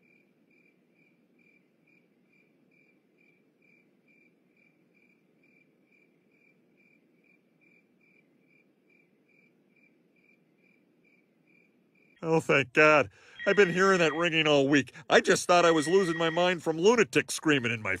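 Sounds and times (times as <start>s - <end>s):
cricket chirping: 0.0s - 12.2s.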